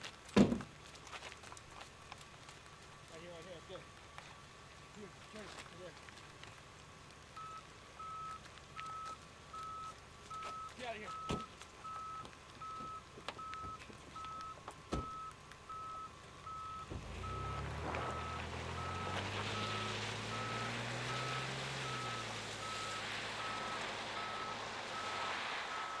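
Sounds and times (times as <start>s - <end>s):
tyres hissing on wet road: 0.0s - 26.0s
car engine pulling away: 11.2s - 26.0s.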